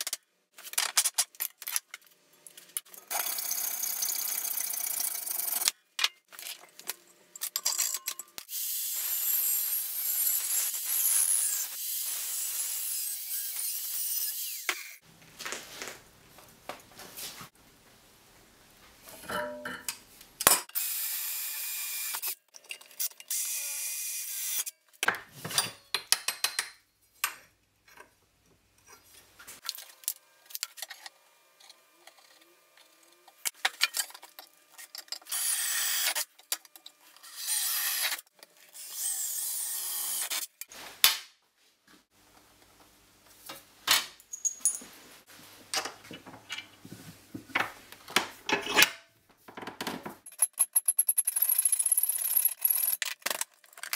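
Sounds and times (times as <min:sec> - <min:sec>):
metal parts clinking against vise: 0:07.4 - 0:08.4.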